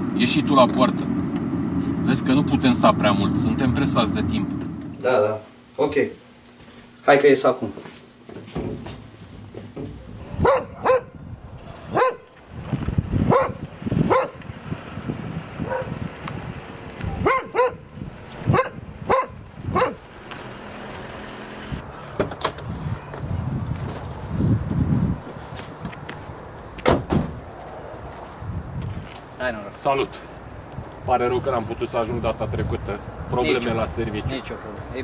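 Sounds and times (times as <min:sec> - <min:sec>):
car engine rumble: 0:00.0 - 0:05.0, 0:08.8 - 0:35.0
dog barking: 0:10.2 - 0:11.2, 0:11.8 - 0:12.3, 0:13.3 - 0:14.4, 0:15.6 - 0:16.0, 0:17.1 - 0:17.9, 0:18.5 - 0:20.0.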